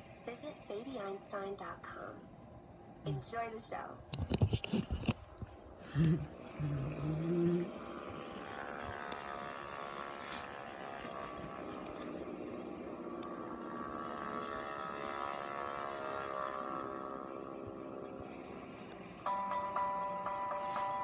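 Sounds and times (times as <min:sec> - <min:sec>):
droning tone with overtones: 0:05.8 - 0:21.0.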